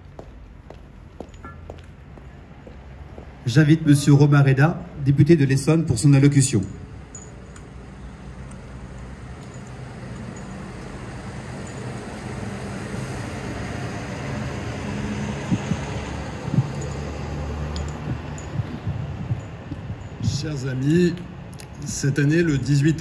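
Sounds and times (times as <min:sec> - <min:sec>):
steady rush and low rumble: 0:14.8 - 0:20.9.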